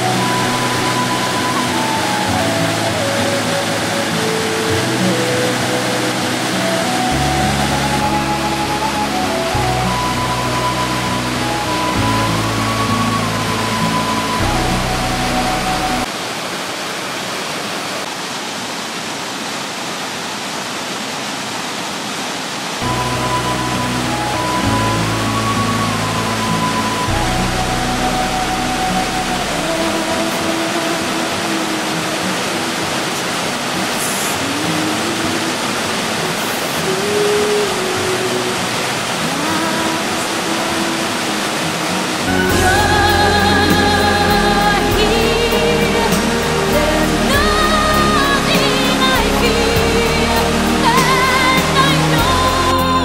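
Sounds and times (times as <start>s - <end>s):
background music: 0.0s - 16.1s, 22.8s - 32.5s, 38.2s - 53.0s
water rushing over rocks: 0.0s - 53.0s.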